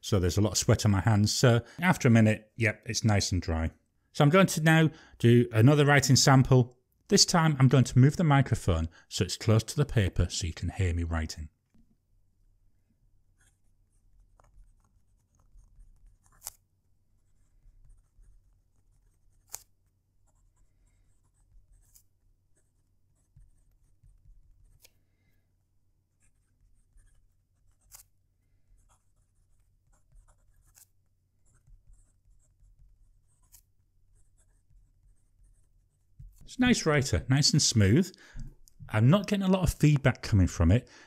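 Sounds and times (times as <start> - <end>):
pen nib scratching on paper: 13.4 - 25.0, 26.1 - 36.8.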